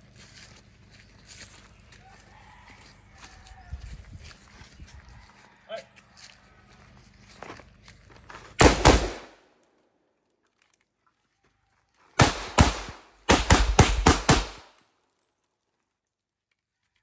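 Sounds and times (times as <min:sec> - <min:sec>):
pistol shots: 0:08.6 - 0:09.4, 0:12.2 - 0:14.7
rifle shots: 0:08.6 - 0:09.4, 0:12.2 - 0:14.7.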